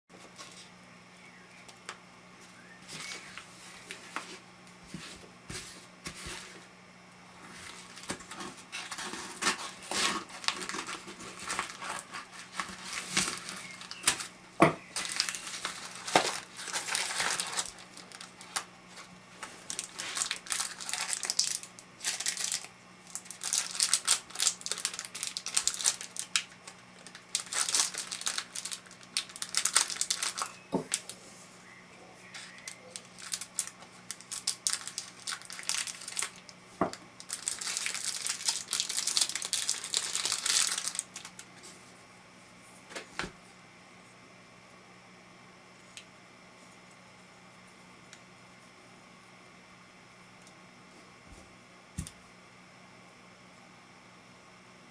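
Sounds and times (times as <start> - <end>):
packaging crinkling and rustling: 7.4 - 31.2, 32.3 - 41.6.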